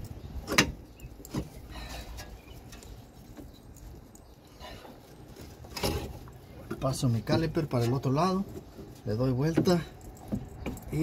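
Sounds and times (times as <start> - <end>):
metal clunks and knocks: 0.4 - 1.6.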